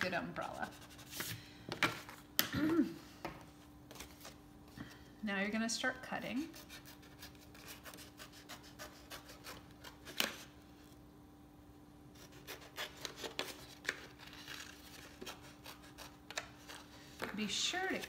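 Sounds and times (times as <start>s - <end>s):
scissors cutting paper plate: 12.2s - 16.8s.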